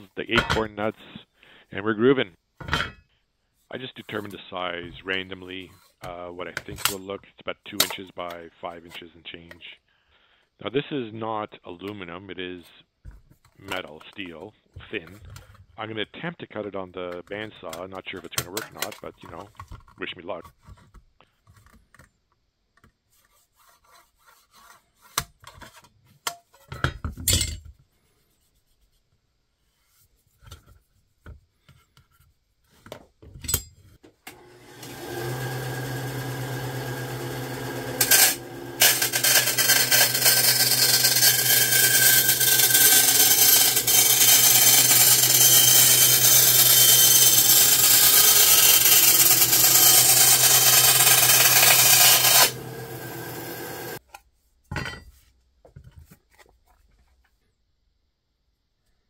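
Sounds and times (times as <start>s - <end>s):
bandsaw cutting thin steel: 34.3s - 54.0s
bandsaw motor hum: 34.3s - 54.0s.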